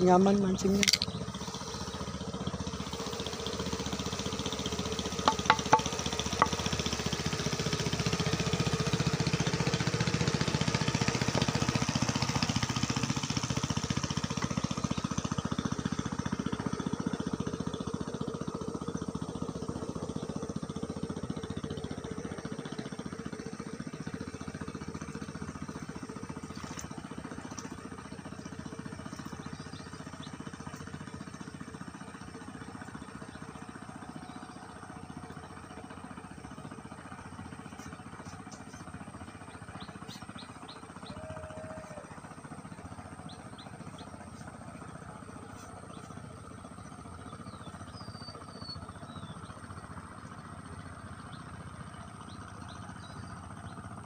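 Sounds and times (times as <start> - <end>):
boat engine passing: 0.0 - 54.0.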